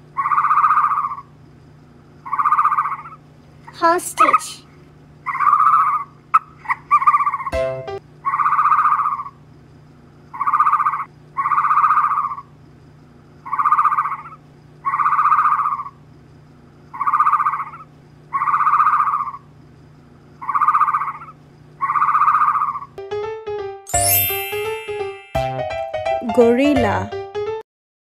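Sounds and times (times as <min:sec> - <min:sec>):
steady low hum: 0:00.0 - 0:08.5, 0:09.1 - 0:23.0.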